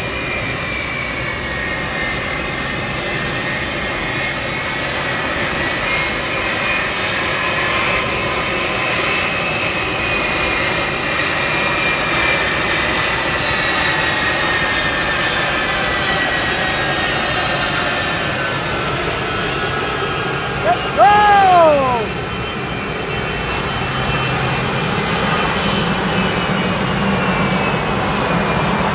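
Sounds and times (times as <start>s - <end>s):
jet engines whining while taxiing: 0.0s - 28.9s.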